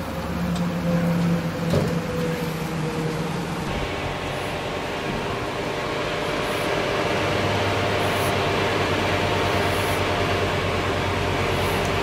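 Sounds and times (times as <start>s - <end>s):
fans blowing air: 0.0s - 12.0s.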